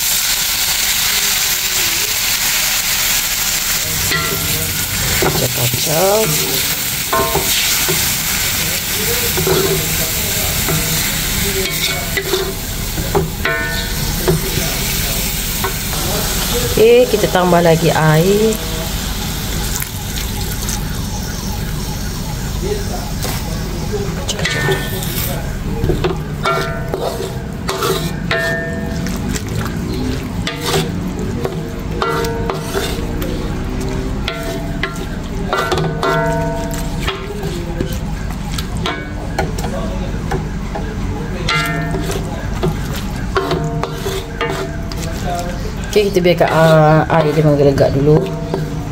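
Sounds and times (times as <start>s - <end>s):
wooden spatula stirring in wok: 0.0s - 17.7s, 24.1s - 48.9s
vegetables sizzling in hot oil: 0.0s - 23.4s
wooden spatula scraping wok: 24.3s - 38.1s, 41.5s - 48.9s.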